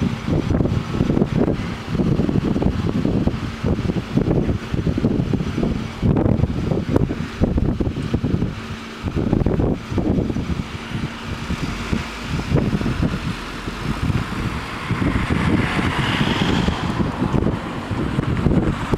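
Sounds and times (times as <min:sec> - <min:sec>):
cars driving over level crossing: 0:00.0 - 0:18.9
wind buffeting microphone: 0:00.0 - 0:18.9
car tyre hiss passing: 0:10.0 - 0:18.9.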